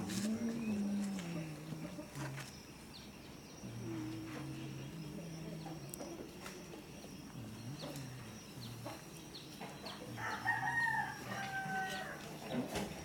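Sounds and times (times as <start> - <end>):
rooster crowing: 10.1 - 12.4.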